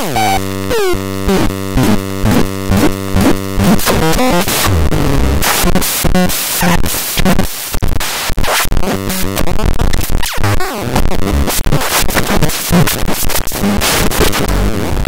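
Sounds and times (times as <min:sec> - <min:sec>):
harsh electronic noise hiss: 0:00.0 - 0:10.4
stuttering electronic tones: 0:00.0 - 0:13.5.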